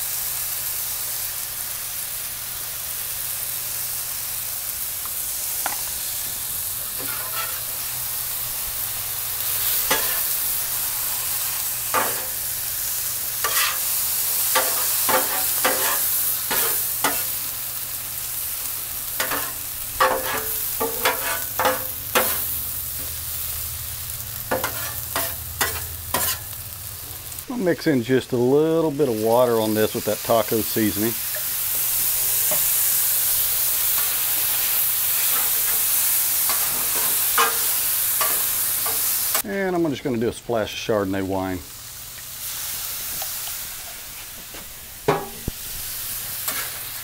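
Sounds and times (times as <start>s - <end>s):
vegetables sizzling on griddle: 0.0s - 47.0s
metal spatula scraping griddle: 6.9s - 7.9s, 9.4s - 12.5s, 13.4s - 17.5s, 19.2s - 23.1s, 24.4s - 26.6s, 33.9s - 39.4s, 46.4s - 47.0s.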